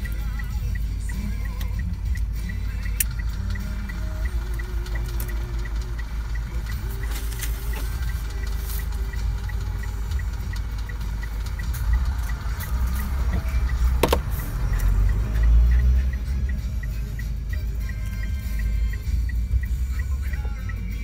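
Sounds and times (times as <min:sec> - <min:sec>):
car engine idling: 0:00.0 - 0:21.0
faint regular ticking: 0:00.0 - 0:21.0
sharp click: 0:01.1 - 0:03.2, 0:11.5 - 0:15.0.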